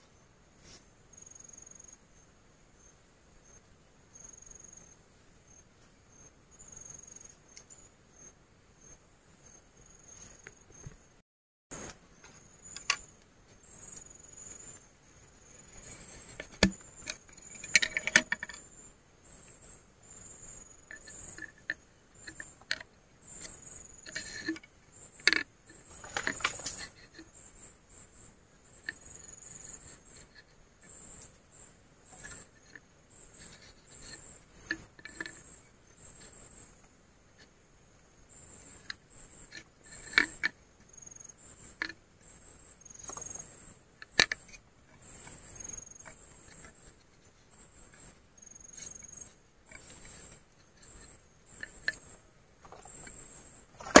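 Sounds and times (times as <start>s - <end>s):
crickets chirping: 0.0s - 54.0s
sharp clicks and rustling: 15.7s - 18.6s, 20.9s - 27.3s, 42.8s - 54.0s.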